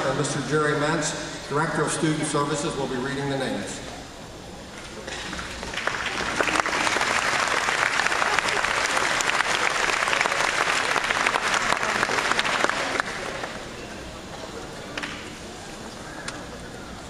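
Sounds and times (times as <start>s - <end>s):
audience applauding: 5.4s - 13.6s.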